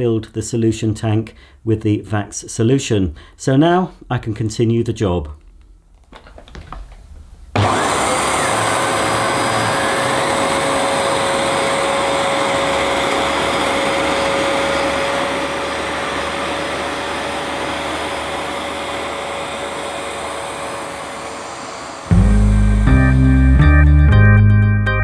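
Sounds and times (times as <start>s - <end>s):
carpet washer running: 7.6s - 22.9s.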